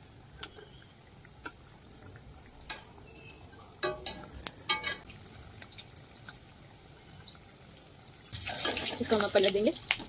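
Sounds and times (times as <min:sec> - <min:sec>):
food deep-frying in oil: 0:00.0 - 0:10.0
skimmer clinking against metal pot: 0:03.8 - 0:05.1.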